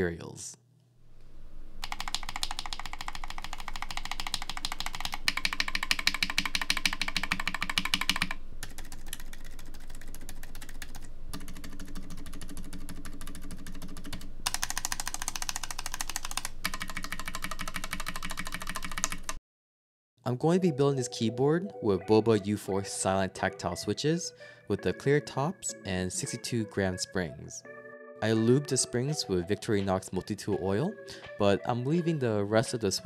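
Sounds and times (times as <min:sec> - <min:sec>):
typing on mechanical keyboard: 0:01.8 - 0:19.4.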